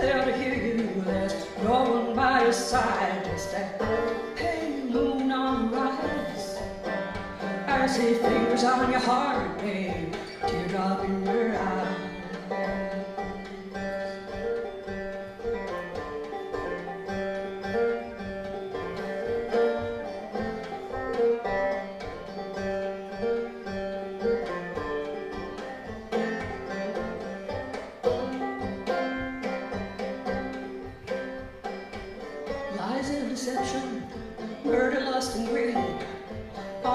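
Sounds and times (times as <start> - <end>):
woman singing: 0.0 - 14.2, 32.7 - 36.9
banjo picking: 0.0 - 36.9.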